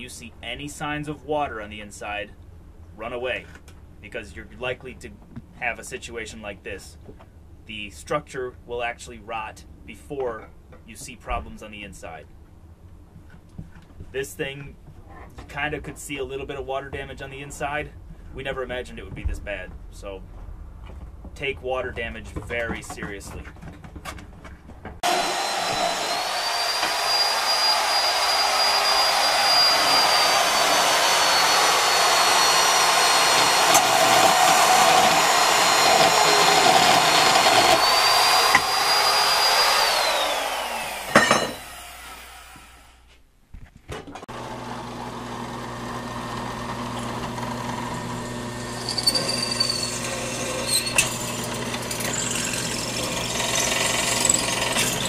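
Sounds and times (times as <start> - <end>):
drill press drilling into steel: 25.0 - 43.0, 44.4 - 55.0
power tool high whine: 25.0 - 43.0, 44.3 - 55.0.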